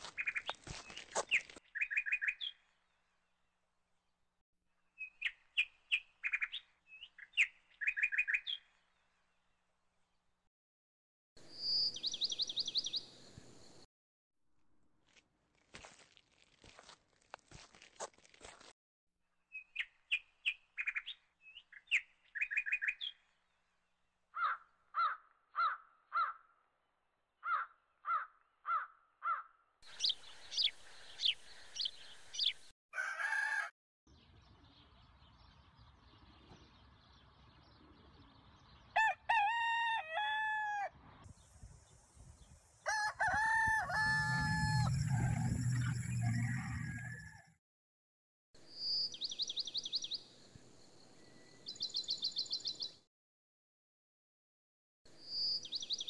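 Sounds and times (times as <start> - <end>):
birds chirping: 29.9 - 32.7, 43.9 - 47.4
rooster crowing: 32.9 - 33.7, 39.0 - 41.0, 42.9 - 47.5.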